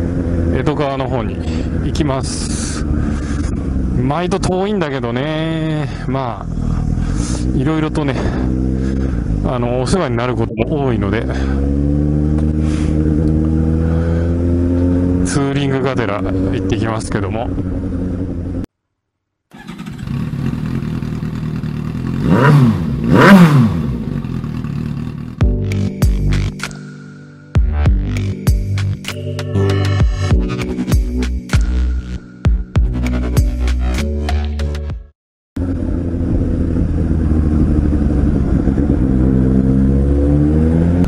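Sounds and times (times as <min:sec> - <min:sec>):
motorcycle engine revving: 0:00.0 - 0:05.7, 0:06.4 - 0:10.2, 0:10.9 - 0:16.8, 0:19.5 - 0:25.5, 0:35.6 - 0:41.0.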